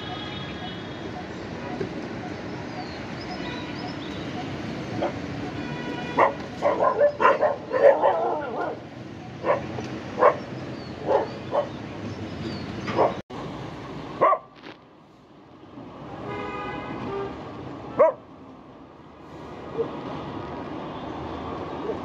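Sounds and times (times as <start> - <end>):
street traffic noise: 0.0 - 22.0
dogs barking: 4.9 - 5.4, 6.1 - 11.8, 12.9 - 13.2, 14.2 - 14.5, 18.0 - 18.3.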